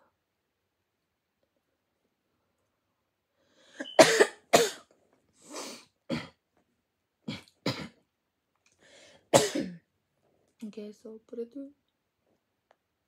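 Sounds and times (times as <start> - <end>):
person breathing: 3.3 - 3.9, 8.8 - 9.3
person coughing: 3.8 - 4.9, 6.1 - 6.4, 7.3 - 8.0, 9.3 - 9.8.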